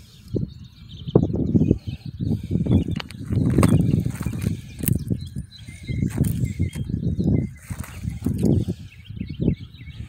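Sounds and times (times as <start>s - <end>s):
footsteps crunching on stones: 3.0s - 5.1s, 6.0s - 6.9s, 7.6s - 8.6s.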